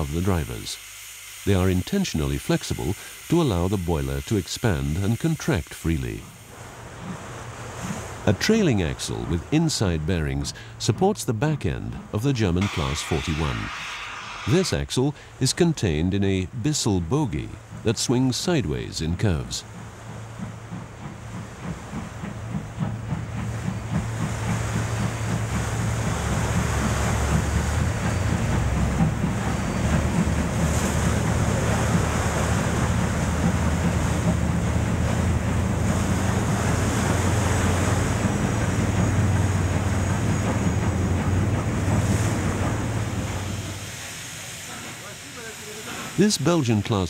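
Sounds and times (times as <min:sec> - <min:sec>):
rushing river water: 0:00.0 - 0:11.0, 0:16.9 - 0:47.0
deep steady rumble: 0:11.7 - 0:16.5, 0:17.3 - 0:44.1
pulsing beats: 0:11.7 - 0:44.4.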